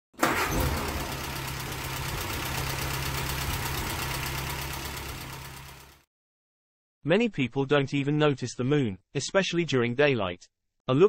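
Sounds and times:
engine idling: 0.2s - 6.0s.

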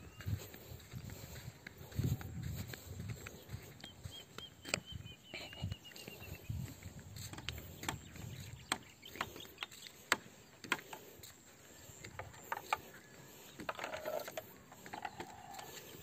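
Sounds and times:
bamboo footbridge clicking: 7.3s - 11.0s, 12.0s - 15.8s
bamboo creaking: 12.0s - 16.0s.

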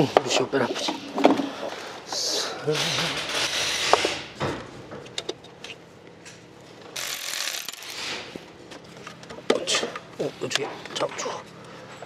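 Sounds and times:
ratchet wrench clicking: 7.0s - 8.2s.

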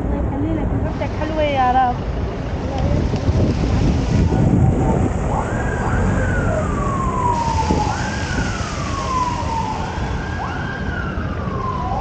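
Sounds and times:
low street rumble: 0.0s - 12.0s
emergency vehicle siren wailing: 4.1s - 12.0s.

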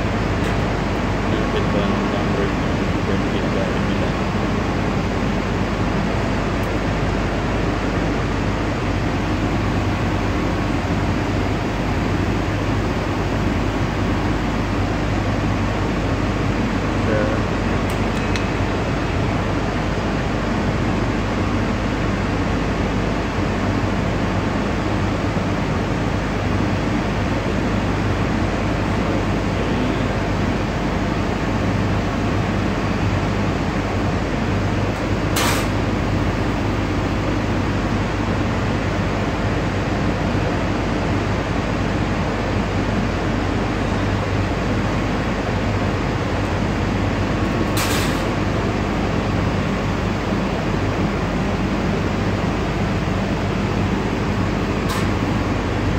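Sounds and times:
industrial machinery drone: 0.0s - 55.9s.

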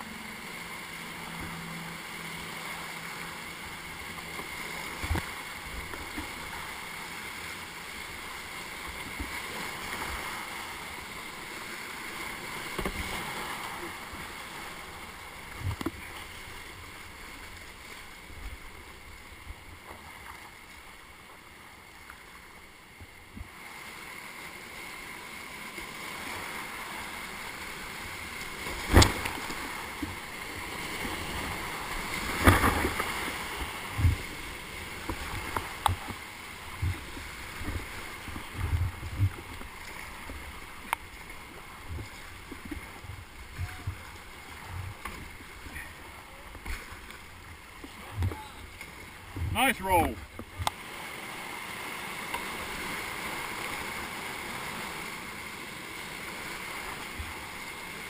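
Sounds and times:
rushing whitewater: 0.0s - 58.0s
paddle splashes and thumps: 28.4s - 50.9s.

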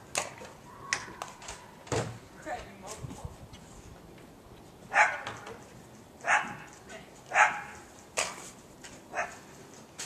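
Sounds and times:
dog barking: 4.9s - 5.3s, 6.2s - 6.6s, 7.3s - 7.8s, 9.1s - 9.4s.

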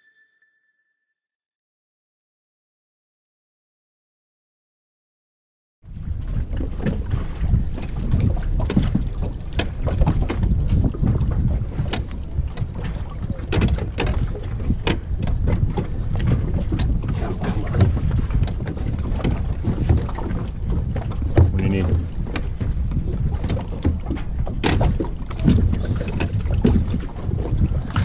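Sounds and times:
wind buffeting microphone: 5.8s - 28.0s
water slapping inflatable dinghy: 5.9s - 28.0s.

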